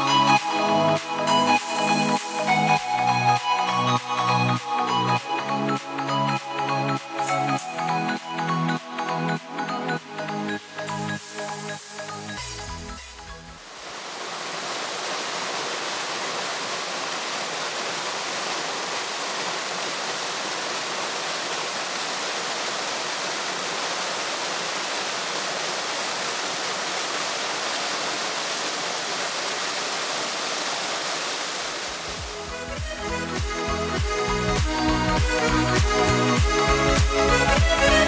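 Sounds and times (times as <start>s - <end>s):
waterfall pouring over rock: 13.6s - 32.6s.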